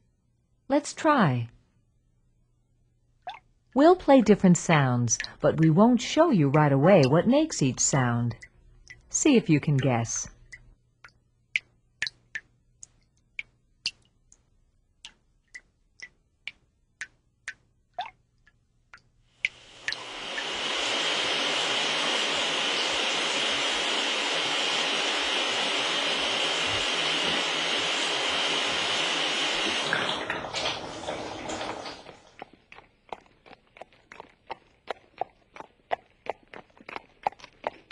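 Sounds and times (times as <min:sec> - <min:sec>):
regular ticking: 0:04.7 - 0:20.0
water running from a tap: 0:19.4 - 0:32.4.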